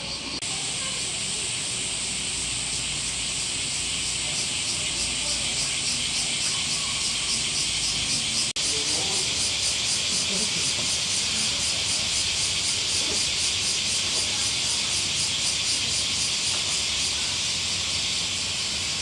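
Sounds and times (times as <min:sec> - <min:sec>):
cicadas buzzing: 0:00.0 - 0:19.0.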